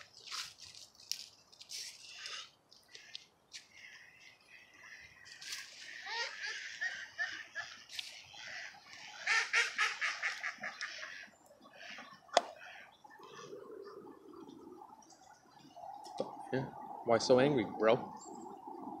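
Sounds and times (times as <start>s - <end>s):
ducks quacking: 2.9s - 13.5s.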